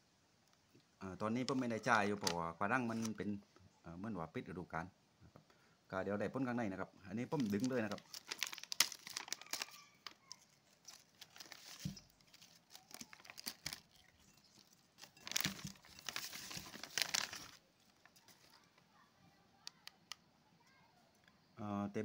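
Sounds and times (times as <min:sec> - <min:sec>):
plastic bag crinkling: 0:07.3 - 0:18.8.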